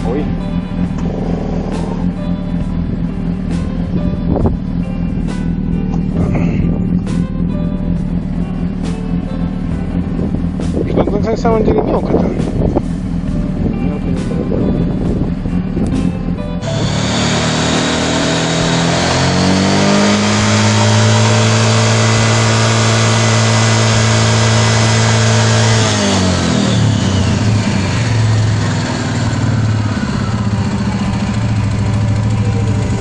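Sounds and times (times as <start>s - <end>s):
atv engine revving: 0.0s - 33.0s
drive belt and pulleys spinning: 16.6s - 33.0s.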